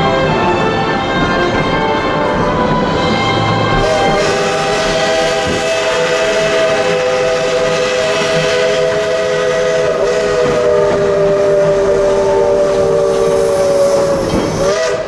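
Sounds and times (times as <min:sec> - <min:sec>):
steam locomotive chime whistle: 0:00.0 - 0:15.0.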